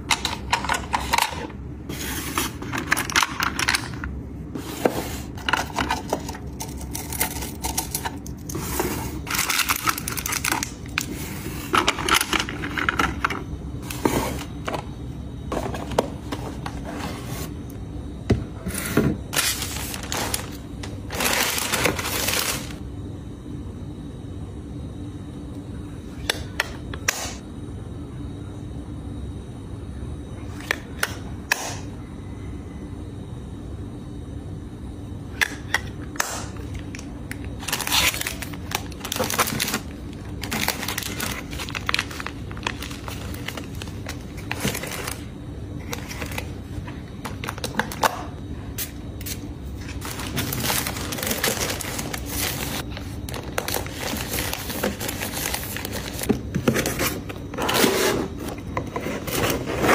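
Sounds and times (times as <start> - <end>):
steady low hum: 0.0 - 59.9
plastic wrapping rustling: 19.3 - 22.8, 37.6 - 45.3, 49.9 - 56.3.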